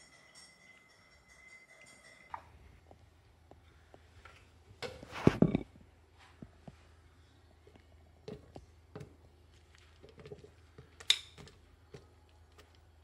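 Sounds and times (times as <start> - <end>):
kitchenware clatter: 0.0 - 2.6, 4.8 - 5.8
faint low hum: 0.0 - 13.0.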